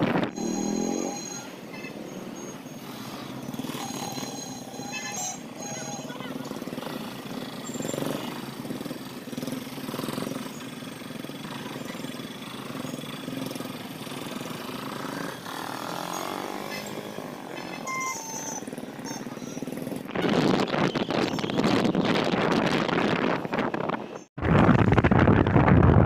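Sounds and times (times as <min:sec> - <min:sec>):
motorbike engines passing: 0:00.0 - 0:24.0
short high beeps: 0:00.3 - 0:02.7, 0:03.7 - 0:06.2.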